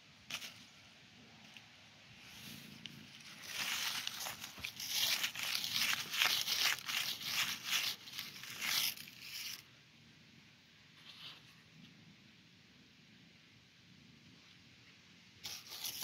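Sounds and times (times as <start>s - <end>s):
dry leaves rustling and crunching: 3.1s - 9.6s.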